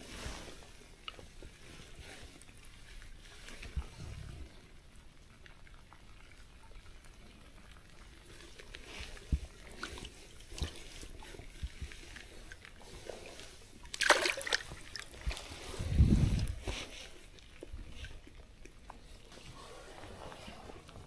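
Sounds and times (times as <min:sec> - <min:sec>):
faint water sounds: 0:00.0 - 0:21.0
water splash: 0:13.9 - 0:16.6.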